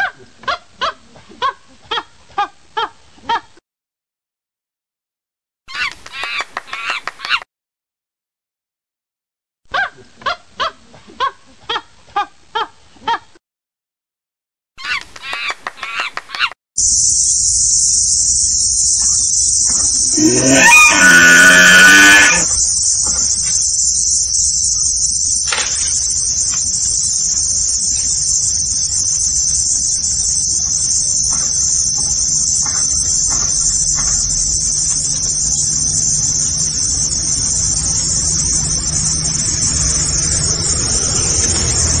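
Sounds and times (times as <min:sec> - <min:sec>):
insects droning: 0:16.8 - 0:42.0.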